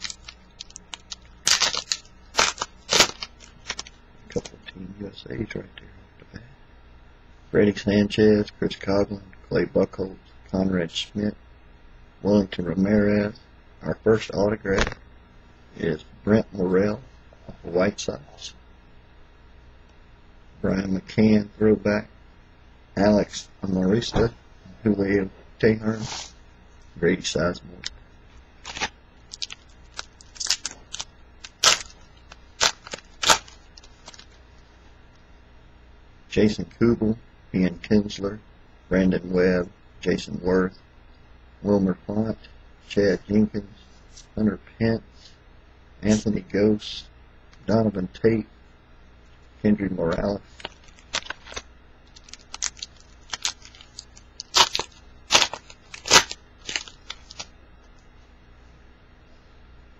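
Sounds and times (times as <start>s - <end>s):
foil wrapper crinkling: 0.0s - 4.5s, 28.6s - 34.4s, 50.5s - 57.5s
foil wrapper ripping: 0.0s - 4.5s, 28.6s - 34.4s, 50.5s - 57.5s.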